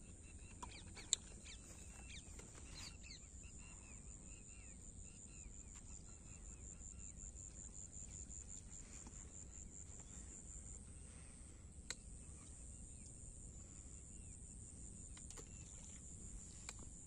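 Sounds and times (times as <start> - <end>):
faint bird chirps: 0.0 - 16.8.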